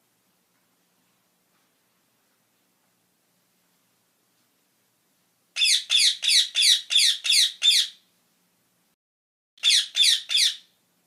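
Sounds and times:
parakeet screeching calls: 5.6s - 8.0s, 9.6s - 10.7s.

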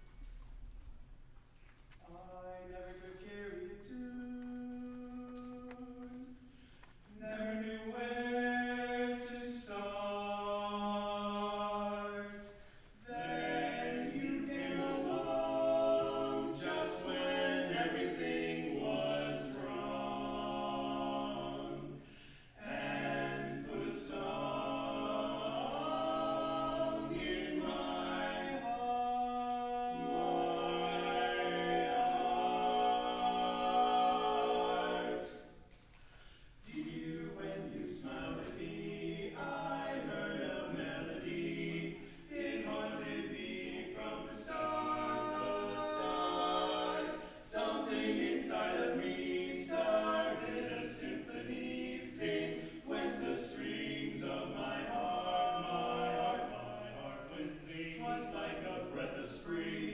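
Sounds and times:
male quartet singing in harmony: 2.1s - 59.9s.

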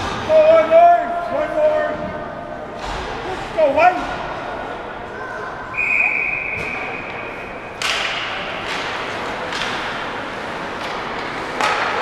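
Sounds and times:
arena noise: 0.0s - 12.0s
steady high whistle tone: 5.7s - 7.5s
hockey stick hitting puck: 7.8s - 12.0s.

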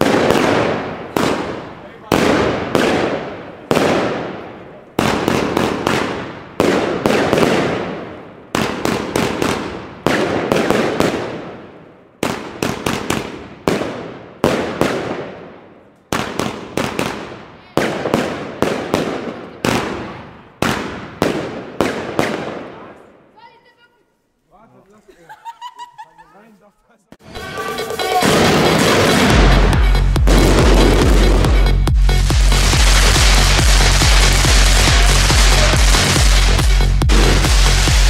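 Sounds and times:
firework bangs: 0.0s - 23.4s, 27.2s - 38.0s.

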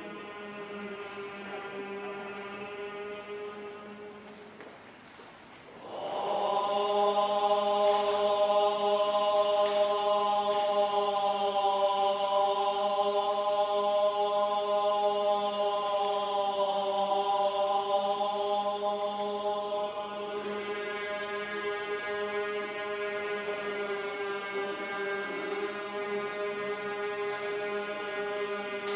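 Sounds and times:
monks chanting in unison: 0.0s - 4.5s, 5.8s - 28.9s.

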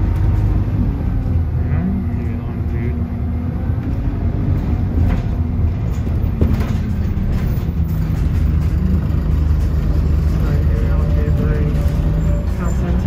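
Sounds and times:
bus engine running: 0.0s - 13.0s
ride rattles: 5.0s - 13.0s.

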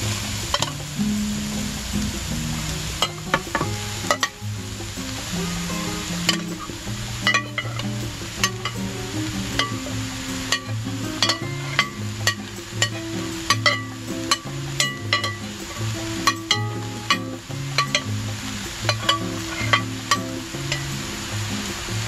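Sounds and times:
background music: 0.0s - 22.0s
onions sizzling in a skillet: 0.0s - 22.0s.

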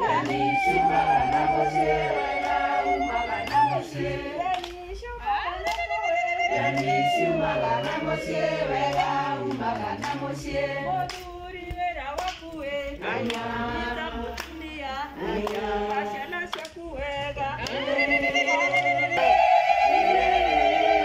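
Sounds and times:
women singing in chorus: 0.0s - 21.0s.

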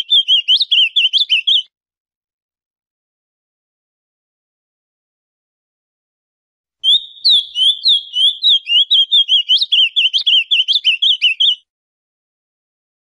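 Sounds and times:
bird singing chirped notes: 0.0s - 1.6s, 6.8s - 11.6s.

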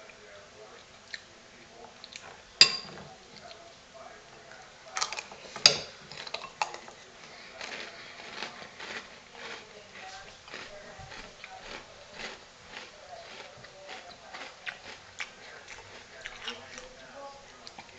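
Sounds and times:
metal spoon clinking on bowl: 2.6s - 3.0s
cereal crunching while chewed: 6.1s - 17.9s.

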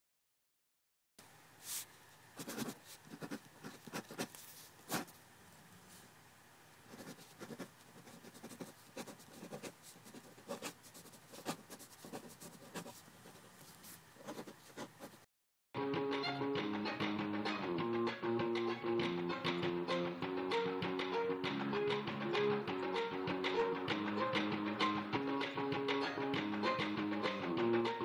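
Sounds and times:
pen scratching on paper: 2.4s - 5.2s, 6.9s - 15.2s.

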